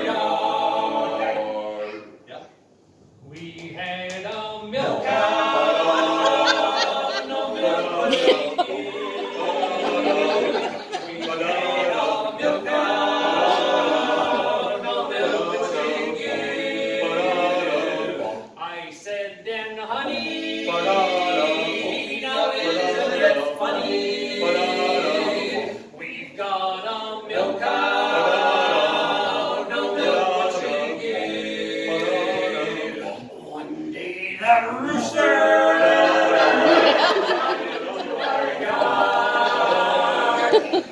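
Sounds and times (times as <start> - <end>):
male vocal quartet singing a cappella: 0.0 - 2.2, 3.2 - 40.9.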